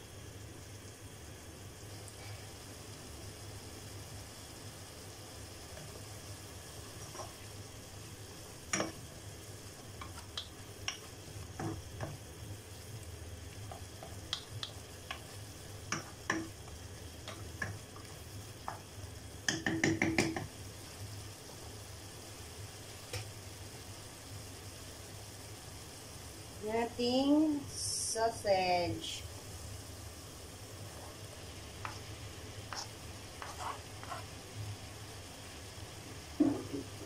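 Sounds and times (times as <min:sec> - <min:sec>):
faint sizzle: 0:00.0 - 0:37.0
wooden spatula scraping a pot: 0:32.7 - 0:34.4.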